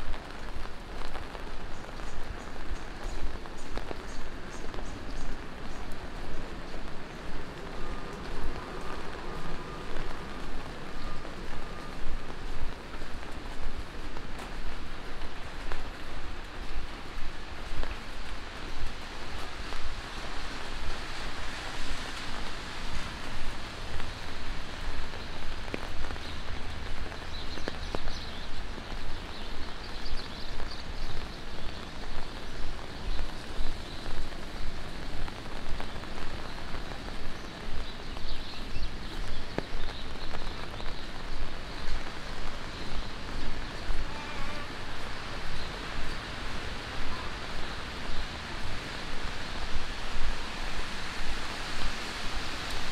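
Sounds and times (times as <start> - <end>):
rain on wet street: 0.0 - 52.9.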